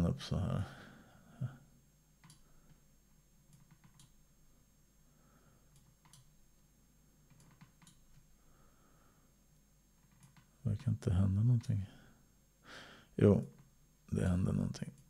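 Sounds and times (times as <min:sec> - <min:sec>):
computer mouse clicks: 0:02.2 - 0:02.8, 0:03.5 - 0:04.2, 0:05.7 - 0:06.3, 0:07.3 - 0:08.3, 0:10.0 - 0:10.9.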